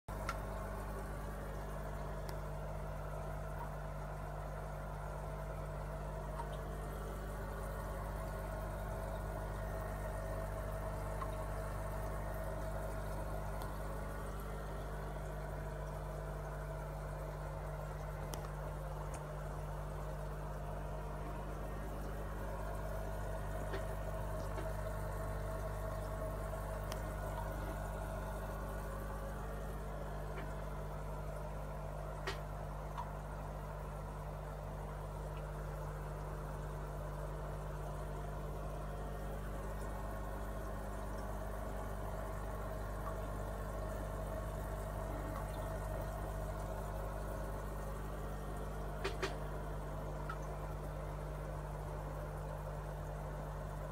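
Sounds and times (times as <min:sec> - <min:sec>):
aquarium pump humming: 0:00.0 - 0:53.9
water bubbling and trickling: 0:00.1 - 0:53.9
faint clicks: 0:00.2 - 0:01.1, 0:18.2 - 0:19.3, 0:49.0 - 0:49.4.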